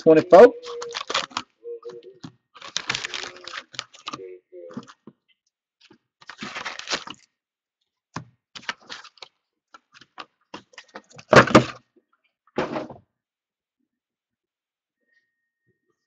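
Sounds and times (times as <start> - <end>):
foil packs rustling: 0.1 - 1.5, 2.5 - 5.0, 5.8 - 7.3, 8.6 - 11.8.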